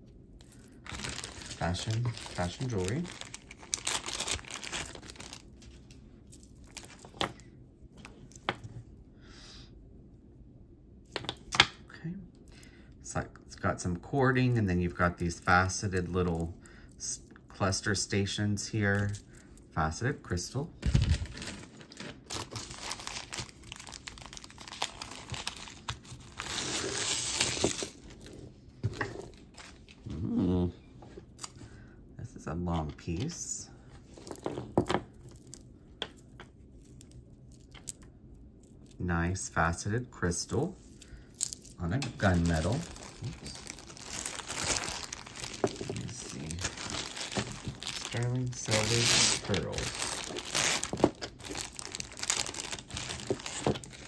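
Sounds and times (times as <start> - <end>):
packaging crinkling: 0.4 - 7.3, 20.8 - 28.4, 40.8 - 54.0.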